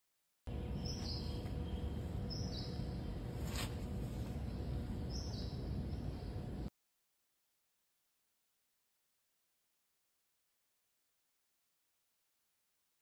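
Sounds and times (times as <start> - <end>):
low background rumble: 0.5 - 6.7.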